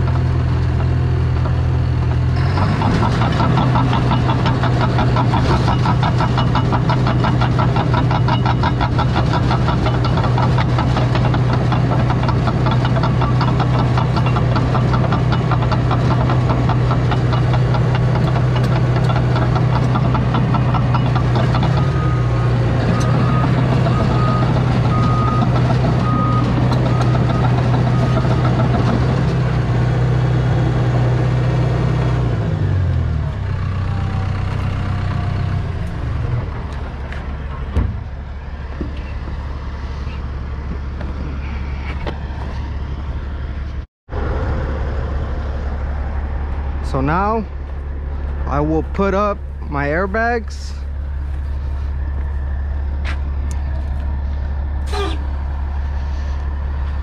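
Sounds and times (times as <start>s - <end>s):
rattling tracks: 0.0s - 29.7s
bulldozer diesel engine running: 0.0s - 57.0s.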